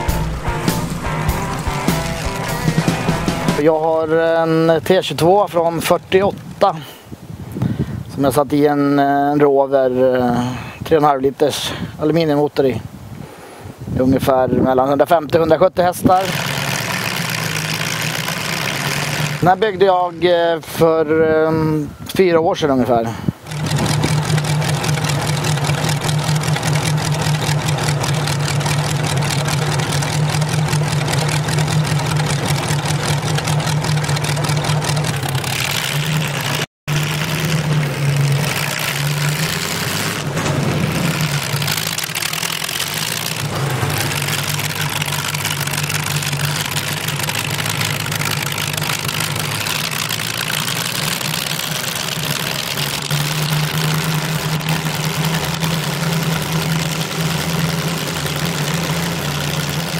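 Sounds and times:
tractor engine running loud: 0.0s - 4.4s, 15.9s - 21.6s, 23.2s - 59.9s.

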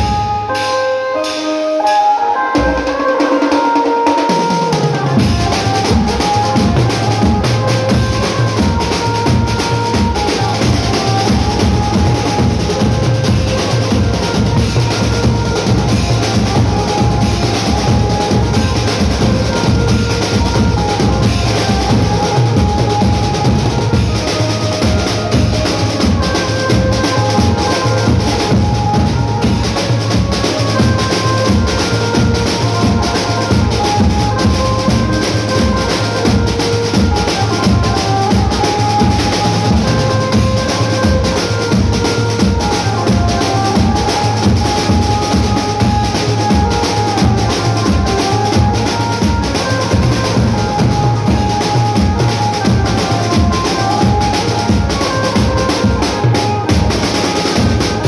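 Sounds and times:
drum kit beat: 0.0s - 58.0s
melody of held notes: 0.0s - 58.0s.

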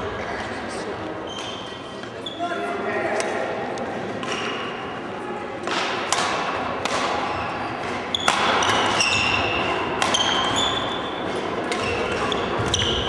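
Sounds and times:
racket striking shuttlecock: 5.6s - 13.0s.

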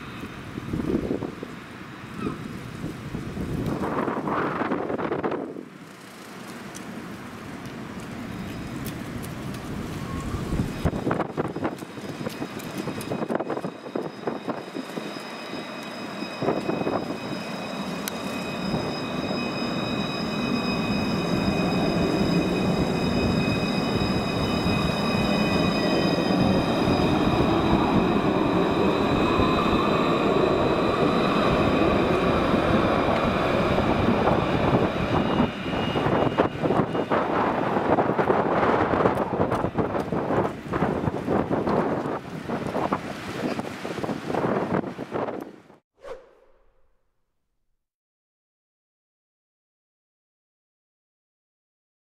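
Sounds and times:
tram wheels rumbling on rail: 0.0s - 45.4s
high whine of traction equipment: 9.8s - 38.2s.

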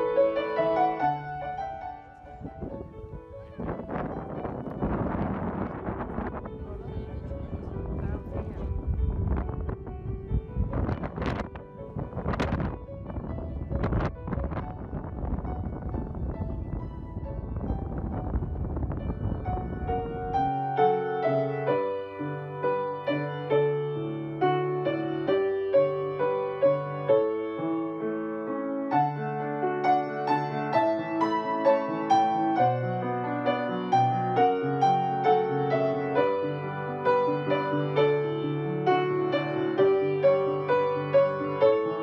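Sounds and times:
solo piano melody: 0.0s - 42.0s
low rushing noise: 1.1s - 21.2s.

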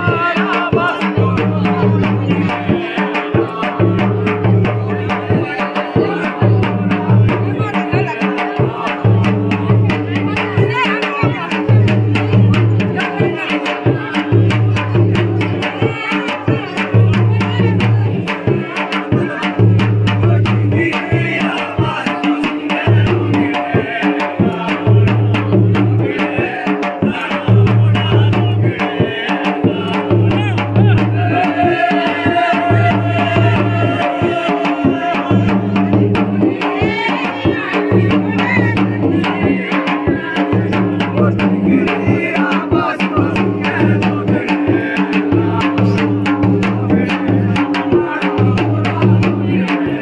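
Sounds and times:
drums beating rhythm: 0.0s - 50.0s
group of voices singing: 0.0s - 50.0s.

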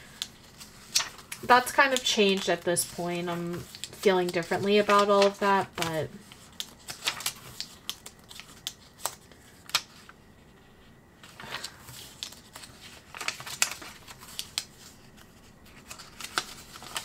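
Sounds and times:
paper pages flicking: 0.1s - 3.0s, 3.6s - 10.1s, 11.4s - 17.0s
paper rustling: 0.2s - 17.0s.

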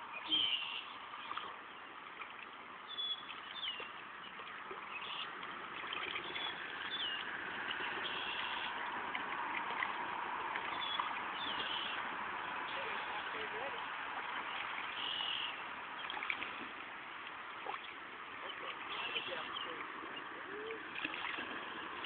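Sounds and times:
river water rushing: 0.0s - 22.0s
bird calling: 0.2s - 1.4s, 4.9s - 8.8s, 10.6s - 13.8s, 14.4s - 16.3s, 17.6s - 21.3s.

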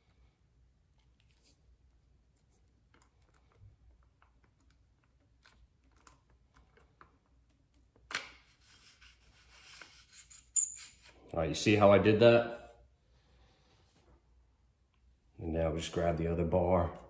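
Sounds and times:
small clicks and handling noises: 2.3s - 8.5s.

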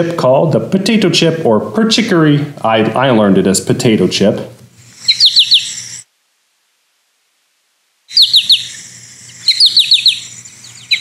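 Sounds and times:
finch calling: 4.9s - 6.0s, 8.1s - 11.0s.

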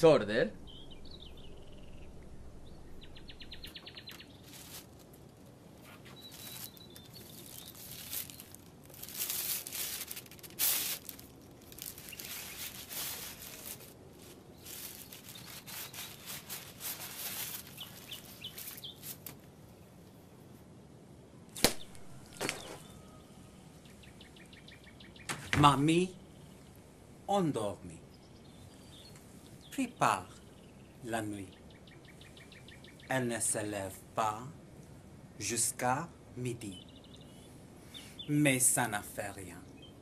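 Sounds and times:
birds chirping: 0.0s - 20.1s, 21.3s - 40.0s
bird trill: 0.5s - 4.8s, 6.1s - 8.6s, 17.4s - 19.2s
rustles and crackles: 2.2s - 20.7s, 21.6s - 25.8s.

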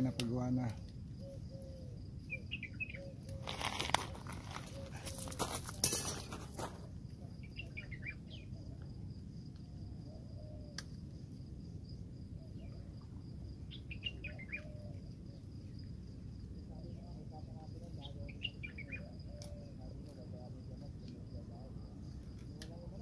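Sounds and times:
birds chirping: 0.0s - 6.6s, 7.2s - 8.8s, 13.6s - 16.0s, 16.7s - 20.0s
rustling noise: 3.4s - 6.9s.

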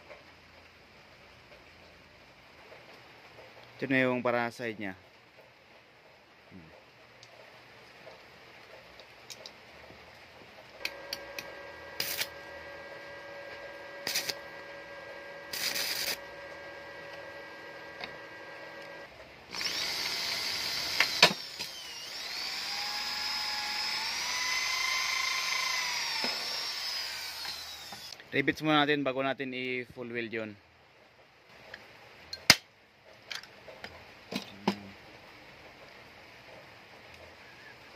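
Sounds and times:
faint steady hum: 9.0s - 28.7s
drill bit crack: 10.8s - 28.2s
power drill boring through metal: 10.8s - 28.2s.

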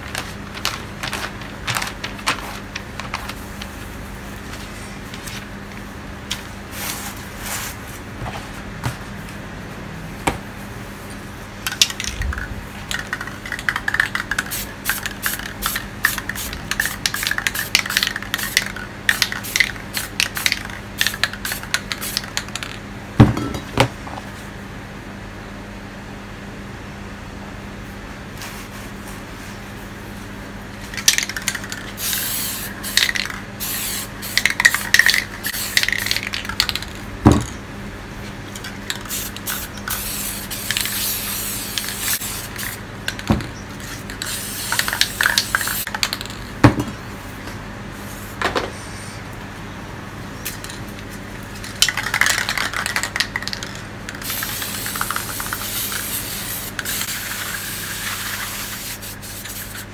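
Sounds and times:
spray paint can hissing: 12.9s - 22.7s, 31.0s - 37.0s, 38.9s - 46.2s, 51.8s - 59.9s.

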